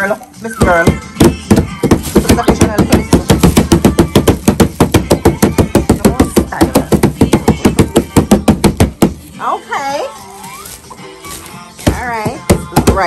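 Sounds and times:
hands slapping cardboard box: 0.6s - 9.2s
child's voice: 10.3s - 11.5s.

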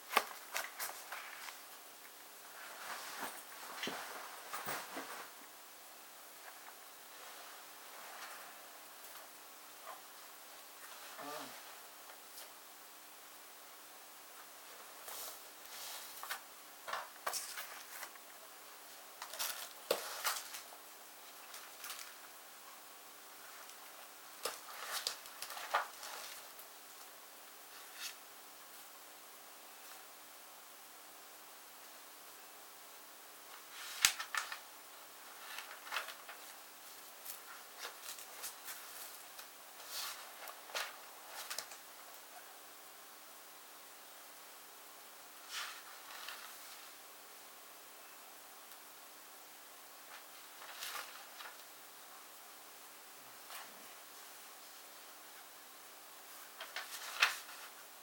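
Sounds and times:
paper and plastic sleeves rustling: 0.0s - 5.6s, 14.6s - 29.0s, 33.5s - 42.5s, 45.3s - 47.1s, 50.0s - 52.0s, 53.4s - 55.5s, 56.2s - 58.0s.

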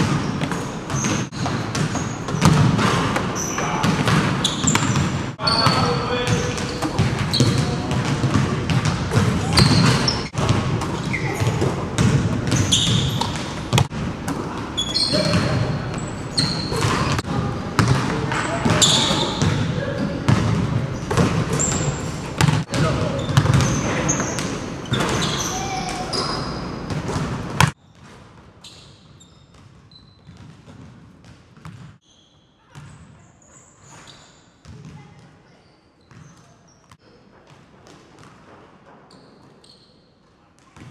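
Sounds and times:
basketball bouncing on wood floor: 0.0s - 14.5s, 17.8s - 19.7s, 22.4s - 25.3s, 29.5s - 31.9s
sneakers squeaking: 0.0s - 37.6s, 39.0s - 40.9s.

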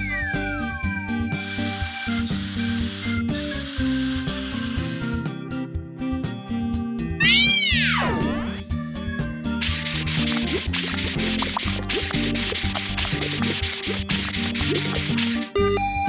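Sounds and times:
background music: 0.0s - 16.0s
cartoon brush scrubbing: 1.4s - 5.1s, 9.6s - 15.6s.

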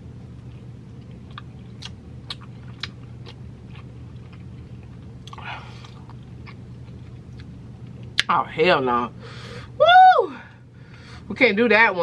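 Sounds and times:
chewing with crunchy clicks: 0.4s - 8.2s.

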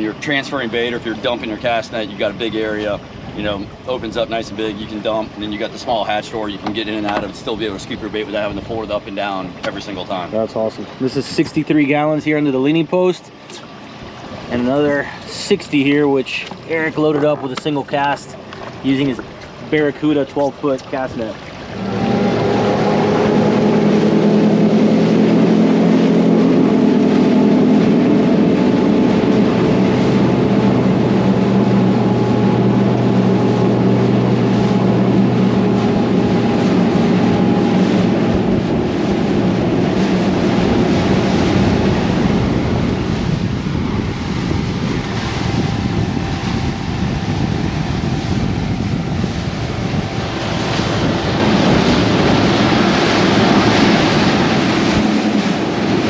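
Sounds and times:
boat outboard engine: 0.0s - 56.0s
water rushing along hull: 0.0s - 56.0s
wind on microphone: 13.7s - 56.0s.

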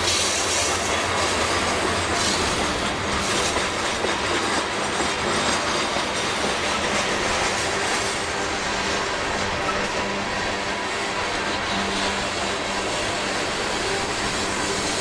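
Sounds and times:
train wheels clacking on rails: 0.0s - 15.0s.

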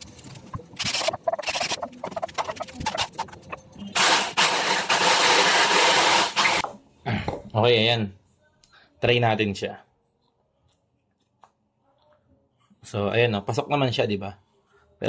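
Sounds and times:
cordless drill boring into wood: 4.0s - 6.6s
jigsaw cutting through board: 4.0s - 6.6s.

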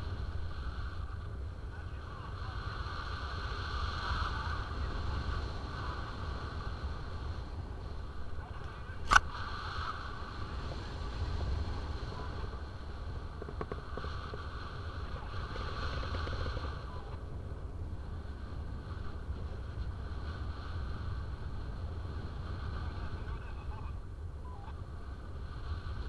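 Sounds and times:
wind buffeting microphone: 0.0s - 26.0s
sharp click: 9.0s - 9.3s.

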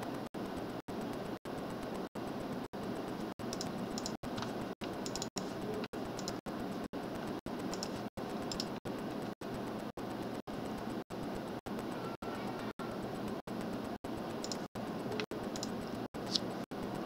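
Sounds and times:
faint computer clicks: 0.0s - 6.5s, 7.1s - 17.0s.

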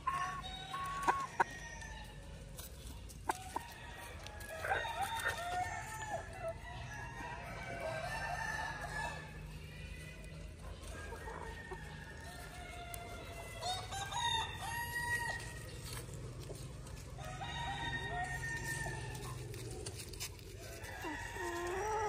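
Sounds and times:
chickens clucking: 0.0s - 22.0s
rooster crowing: 4.4s - 9.3s, 11.2s - 15.6s, 17.2s - 19.2s, 20.6s - 22.0s.

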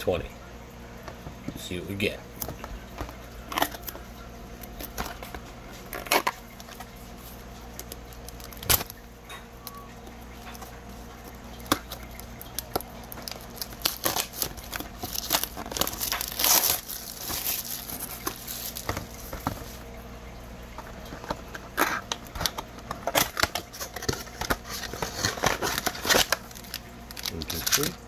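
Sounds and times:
plastic wrapping tearing and crinkling: 2.4s - 9.0s, 10.4s - 19.9s, 21.0s - 28.0s
cardboard handling: 11.7s - 19.8s, 20.9s - 28.0s.

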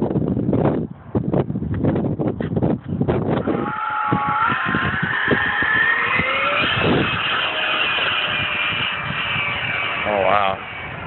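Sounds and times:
model jet fan whine passing: 3.2s - 11.0s.

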